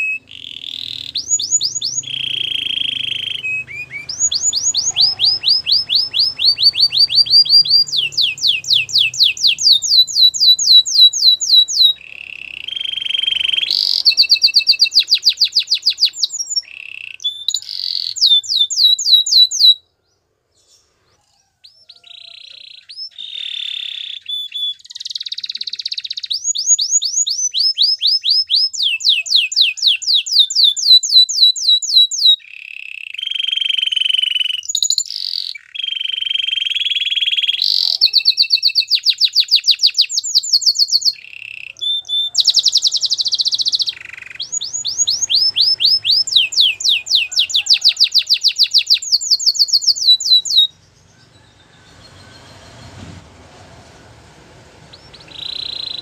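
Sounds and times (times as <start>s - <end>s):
canary singing: 0.0s - 53.5s, 54.2s - 56.0s.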